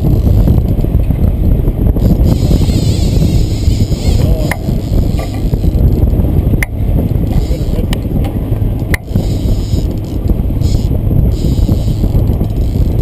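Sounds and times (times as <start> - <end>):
boat engine rumble: 0.0 - 13.0
wind buffeting microphone: 0.0 - 13.0.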